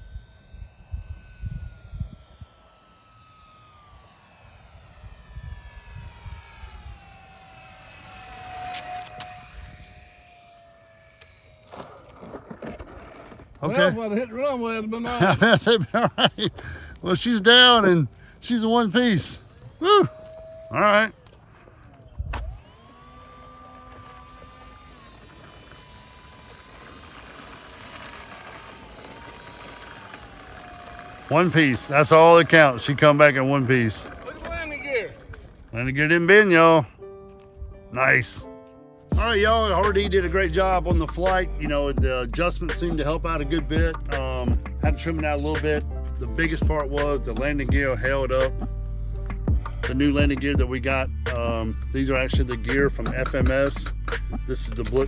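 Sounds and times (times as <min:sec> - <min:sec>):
wind buffeting microphone: 0:00.0 - 0:02.6
model plane motor whining: 0:00.0 - 0:38.4.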